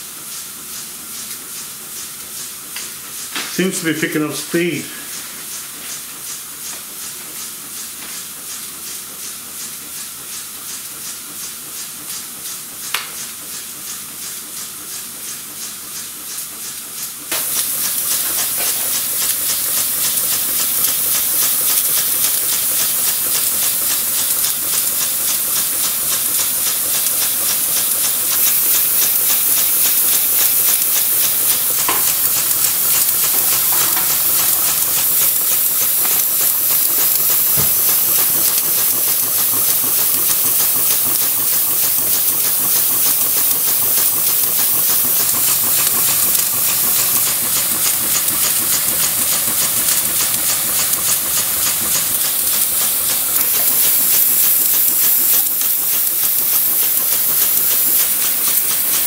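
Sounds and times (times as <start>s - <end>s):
steam engine hissing and puffing: 2.5s - 6.1s, 16.8s - 59.0s.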